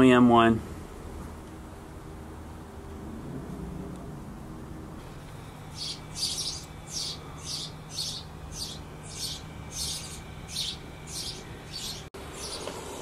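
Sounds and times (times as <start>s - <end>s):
bird chirping: 5.5s - 12.9s.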